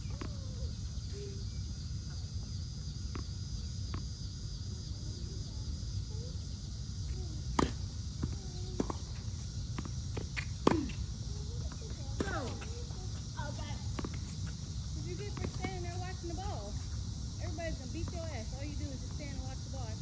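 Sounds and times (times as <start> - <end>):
high insect drone: 0.0 - 20.0
tennis ball hit and bouncing: 7.4 - 13.1, 13.9 - 16.4.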